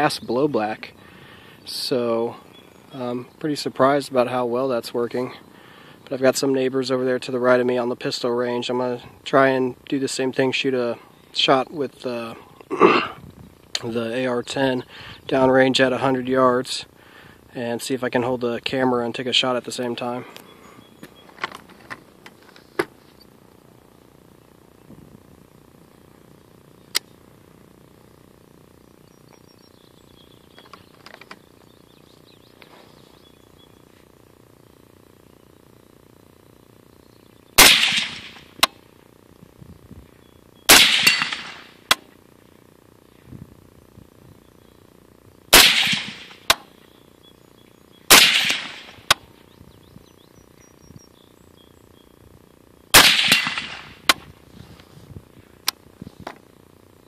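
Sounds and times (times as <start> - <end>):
birds chirping: 0.0 - 41.2, 44.0 - 53.8
sharp clicks: 26.9 - 27.2
suppressed rifle shots: 37.6 - 38.8, 40.7 - 42.1, 45.5 - 46.8, 48.1 - 49.3, 52.9 - 54.3.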